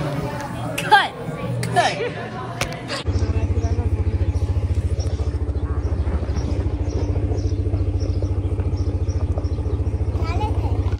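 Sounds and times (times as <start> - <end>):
engine running: 2.6 - 10.9.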